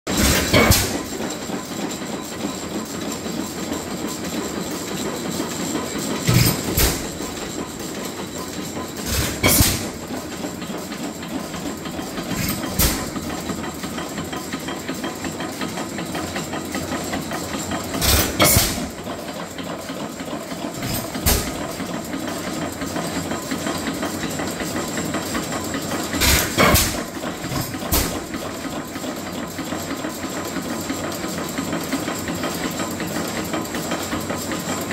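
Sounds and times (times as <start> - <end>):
engine running with steady clatter: 0.1 - 34.9.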